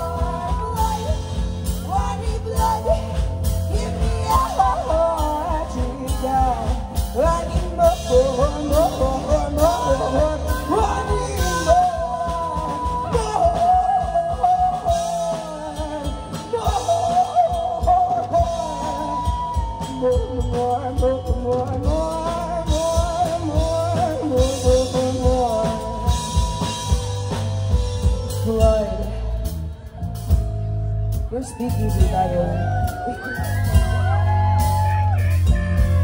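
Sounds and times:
women singing: 0.0 - 26.9
bass guitar: 0.0 - 36.0
drums: 0.0 - 36.0.

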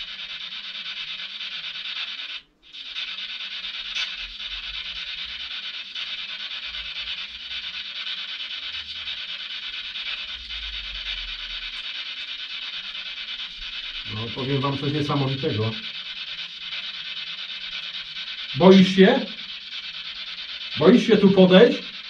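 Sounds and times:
radio static hiss: 14.0 - 15.9, 18.5 - 19.4, 20.8 - 22.0.

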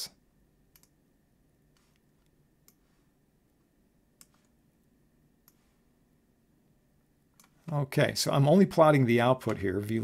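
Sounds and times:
faint computer mouse clicks: 0.7 - 1.0, 1.7 - 2.9, 4.2 - 4.5, 5.4 - 5.7.

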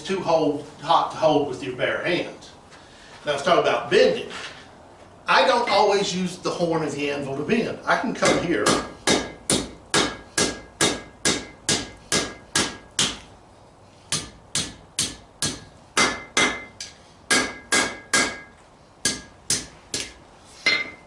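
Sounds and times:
hammer striking steel on anvil: 8.2 - 13.2, 14.1 - 21.0.

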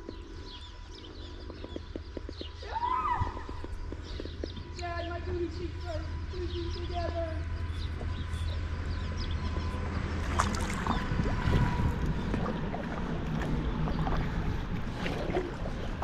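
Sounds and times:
wind buffeting microphone: 0.0 - 16.0
river water flowing: 10.1 - 16.0.

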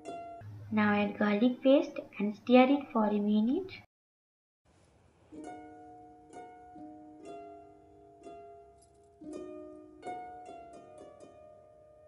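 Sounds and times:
gentle plucked-string music: 0.0 - 1.6, 5.3 - 12.0.

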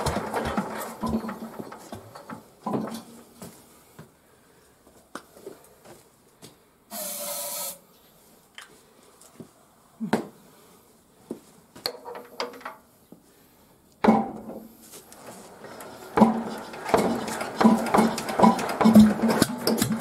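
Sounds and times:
aerosol spray can hissing: 6.9 - 7.8.

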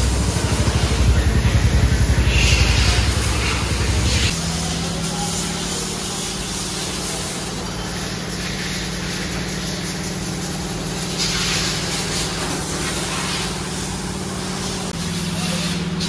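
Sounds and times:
machine hum: 0.0 - 8.2
burst of hissing air: 5.0 - 16.0.

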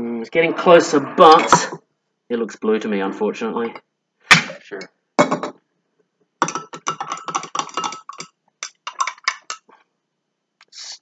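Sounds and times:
glass rod clinking in beaker: 6.4 - 9.7.

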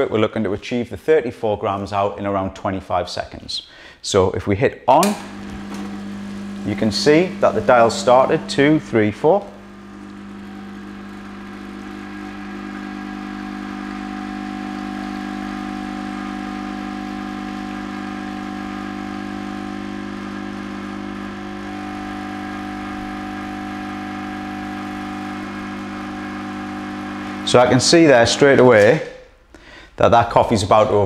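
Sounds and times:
espresso machine pump buzzing: 5.0 - 29.0.

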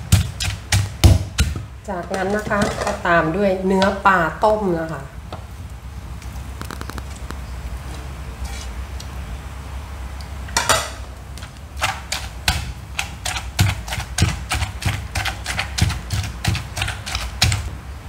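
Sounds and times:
wooden pestle pounding in mortar: 0.0 - 3.0, 11.8 - 17.7.

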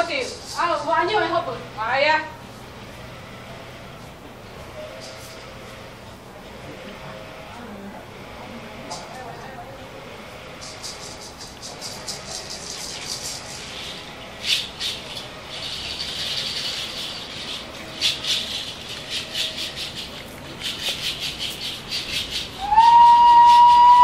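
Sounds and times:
hand rattle shaking: 0.0 - 1.4, 10.6 - 22.7
high whistle-like tone: 22.6 - 24.0.

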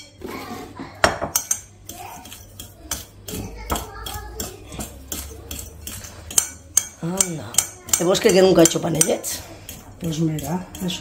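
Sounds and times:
utensil stirring dry ingredients: 0.0 - 11.0
metal clinking against bowl: 1.0 - 11.0.

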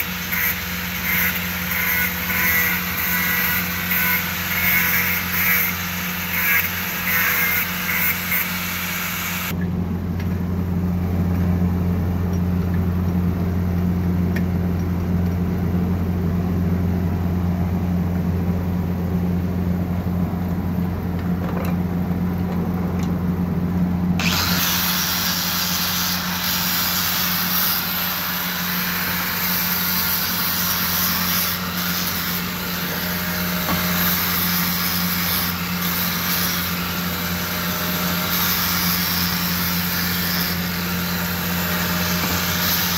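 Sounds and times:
angle grinder motor hum: 0.0 - 9.6, 24.1 - 42.9.

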